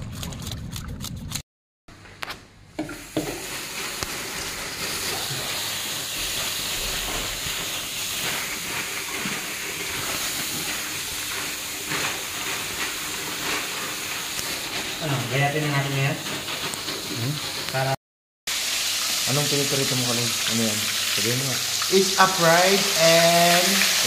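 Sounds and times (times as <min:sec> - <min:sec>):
tap running into a sink: 0:02.8 - 0:03.4.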